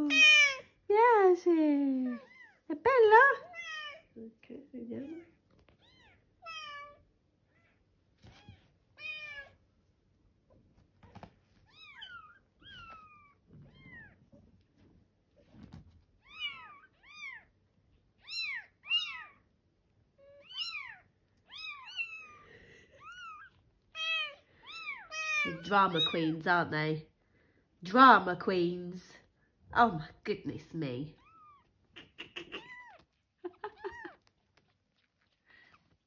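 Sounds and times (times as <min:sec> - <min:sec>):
kittens mewing: 0:00.0 - 0:00.7, 0:31.2 - 0:34.5
soft rustling: 0:07.5 - 0:18.0, 0:32.6 - 0:36.0.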